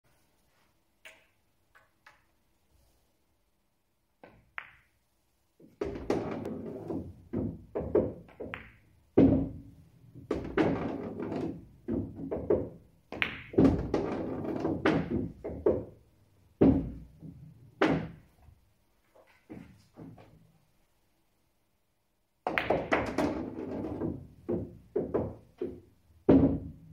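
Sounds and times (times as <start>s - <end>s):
pool balls clicking together: 7.7s - 8.9s.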